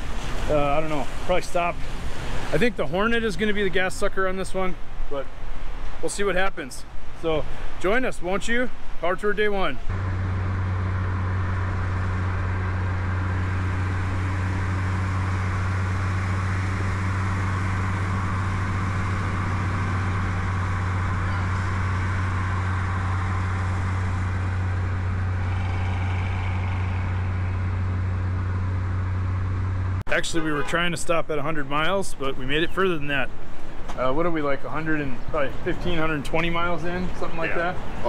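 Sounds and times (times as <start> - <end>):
road noise hiss: 0.0 - 38.0
car engine drone: 9.9 - 32.0.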